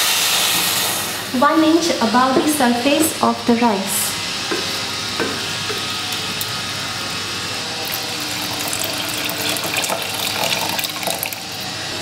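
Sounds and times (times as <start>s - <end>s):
water pouring into a pot: 7.8s - 11.7s.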